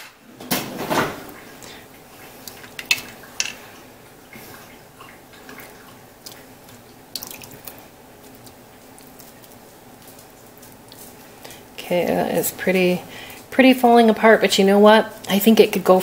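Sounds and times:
liquid sloshing and dripping: 0:00.8 - 0:11.8.

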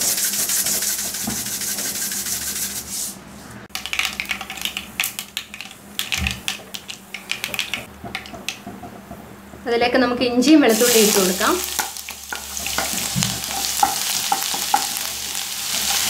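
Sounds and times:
seeds sizzling and popping in oil: 0:03.8 - 0:08.7, 0:10.7 - 0:16.0.

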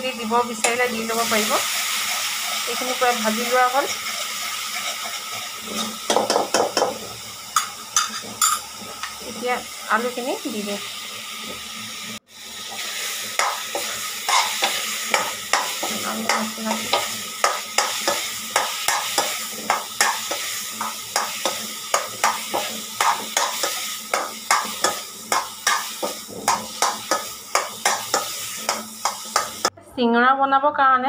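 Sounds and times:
oil frying sizzle: 0:00.0 - 0:29.7
spatula scraping metal pan: 0:00.6 - 0:06.8, 0:13.3 - 0:29.7.

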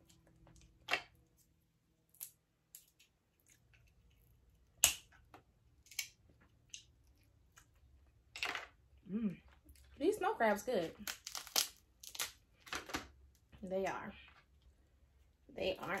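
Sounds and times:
crab shells cracking: 0:02.0 - 0:08.0, 0:11.0 - 0:13.4.

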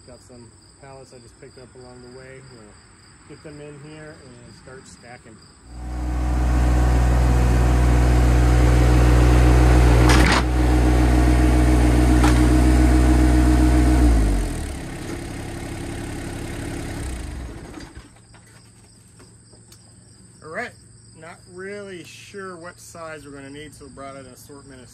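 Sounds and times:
tractor diesel engine running: 0:05.7 - 0:18.2.

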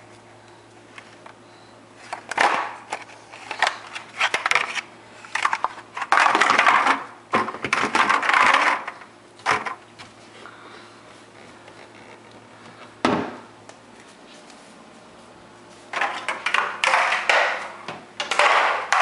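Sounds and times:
plastic ice cube trays clattering: 0:02.1 - 0:09.8, 0:18.2 - 0:19.0.

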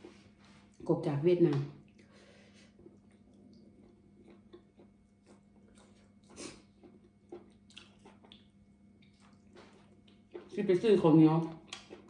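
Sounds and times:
faint steady hum: 0:00.0 - 0:12.0
person chewing: 0:01.9 - 0:10.6, 0:11.6 - 0:12.0.

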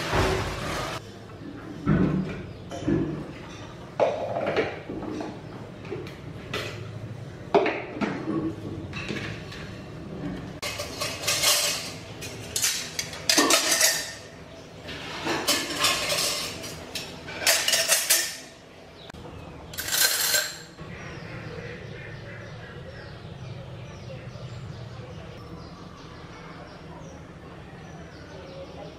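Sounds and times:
metal utensils clinking: 0:10.6 - 0:18.6, 0:19.7 - 0:20.8.

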